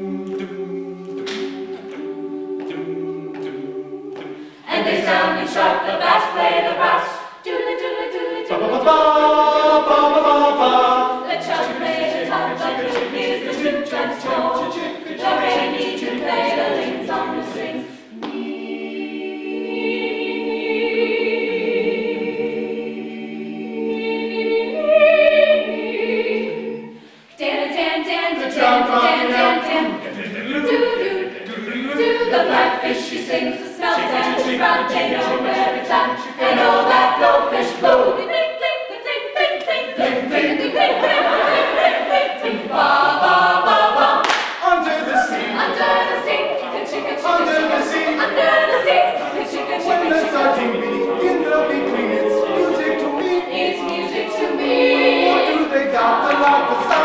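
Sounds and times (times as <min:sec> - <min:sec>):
a cappella group singing: 0:00.0 - 0:57.0.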